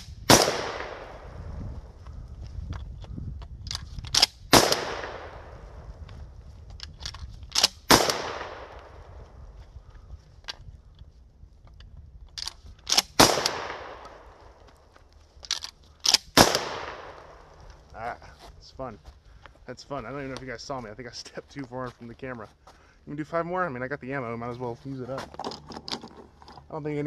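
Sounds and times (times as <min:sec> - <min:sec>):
shotgun shots with echo: 0:00.3 - 0:01.4, 0:04.5 - 0:05.6, 0:07.9 - 0:09.0, 0:13.2 - 0:14.3, 0:16.4 - 0:17.4
shotgun pump clicks and clacks: 0:03.4 - 0:04.8, 0:06.8 - 0:08.1, 0:12.3 - 0:13.6, 0:15.4 - 0:16.6.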